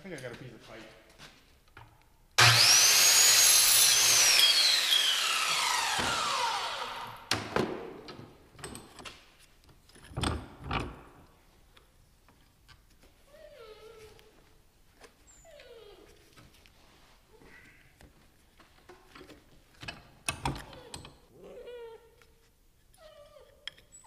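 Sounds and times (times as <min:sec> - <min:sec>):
angle grinder cutting steel pipe: 0:02.4 - 0:07.2.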